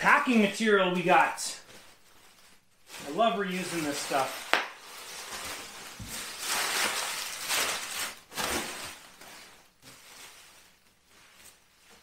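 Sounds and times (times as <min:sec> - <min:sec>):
plastic packing rustling and crinkling: 0:00.0 - 0:12.0.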